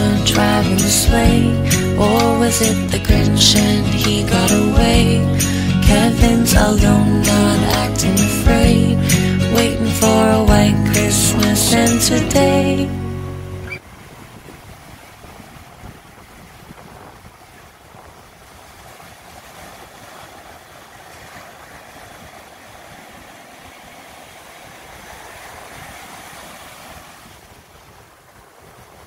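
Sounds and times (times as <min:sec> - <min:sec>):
waves breaking on beach: 0:13.6 - 0:29.0
wind buffeting microphone: 0:13.6 - 0:29.0.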